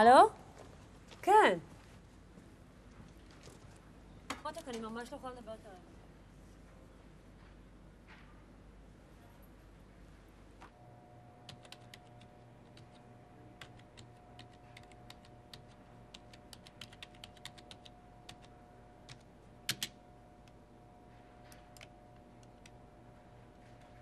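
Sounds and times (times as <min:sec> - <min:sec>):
electrical hum: 0:00.0 - 0:24.0
typing on keyboard: 0:11.5 - 0:13.0, 0:13.6 - 0:18.5, 0:19.1 - 0:20.0.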